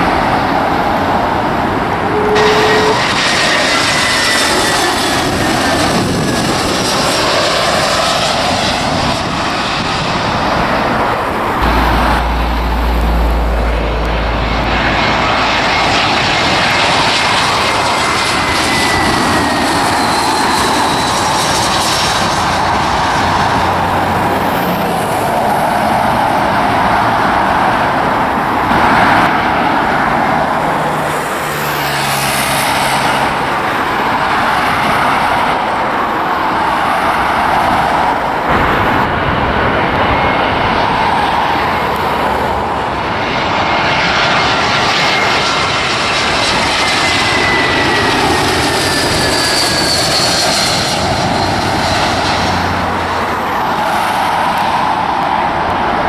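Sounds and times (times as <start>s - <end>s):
jet airliner engines rushing: 0.0s - 56.0s
jet engine whine: 0.0s - 56.0s
heavy low rumble: 10.3s - 16.5s.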